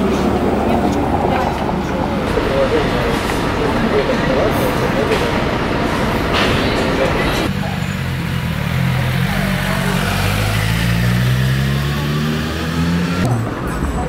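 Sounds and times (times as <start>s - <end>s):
passers-by talking: 0.0s - 10.8s.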